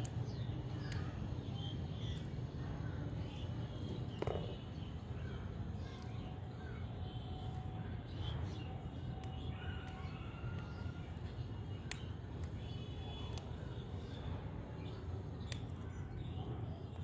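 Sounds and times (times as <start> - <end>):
beak pecking clicks: 0.0 - 1.1, 11.6 - 14.1, 15.4 - 15.8
low background noise: 0.0 - 17.0.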